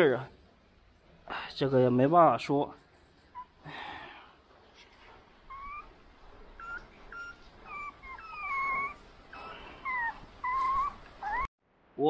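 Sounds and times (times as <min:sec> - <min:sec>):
puppies whining: 0:05.2 - 0:11.5.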